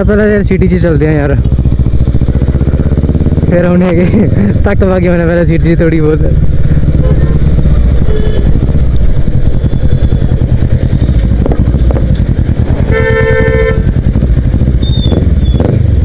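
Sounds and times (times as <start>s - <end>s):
motorcycle engine running: 0.0s - 16.0s
vehicle horn honk: 7.0s - 8.6s, 12.8s - 14.0s.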